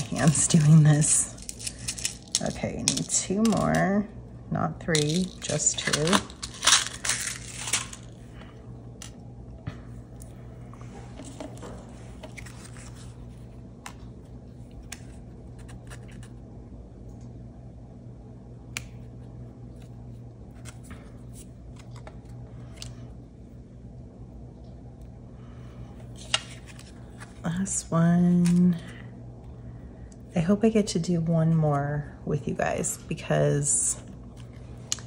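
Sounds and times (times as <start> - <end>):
card handling: 0.0 - 3.8, 4.9 - 8.2, 10.2 - 16.4, 26.0 - 27.4.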